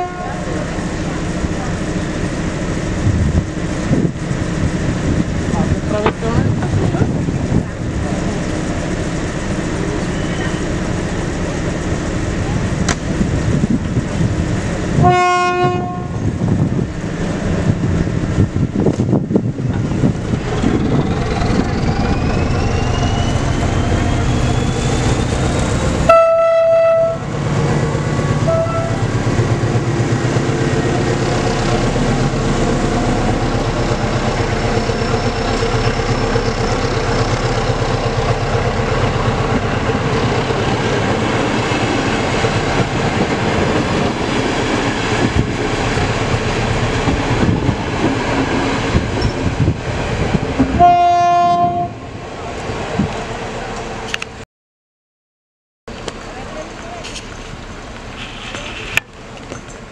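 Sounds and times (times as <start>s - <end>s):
locomotive horn blasts: 0.0s - 0.4s, 15.0s - 16.2s, 26.1s - 27.3s, 28.4s - 29.0s, 50.7s - 52.1s
diesel engine working under load: 27.3s - 50.5s.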